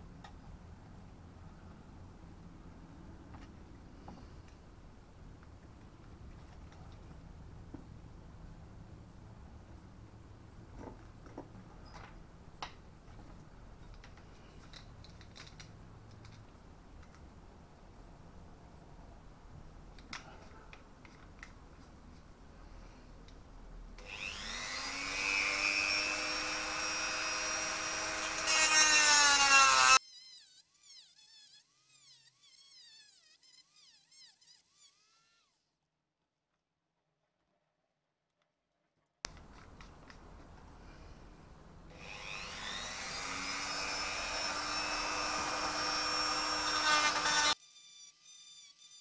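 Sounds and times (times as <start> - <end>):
rotary tool whining and cutting: 24.0 - 35.6, 41.9 - 49.0.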